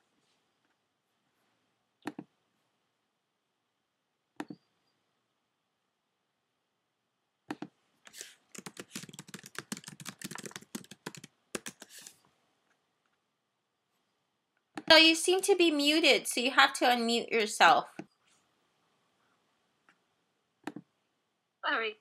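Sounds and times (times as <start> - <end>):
computer keyboard key clicks: 8.6 - 11.9.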